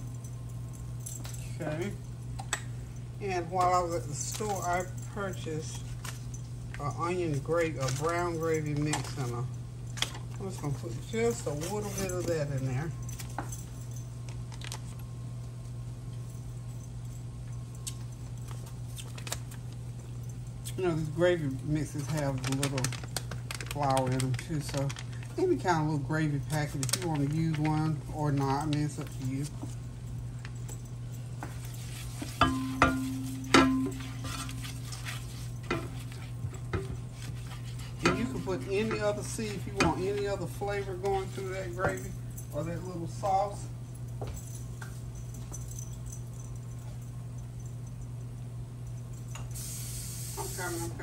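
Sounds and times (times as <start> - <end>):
low steady hum: 0.0 - 51.0
spoon knocking against pan: 32.4 - 34.0.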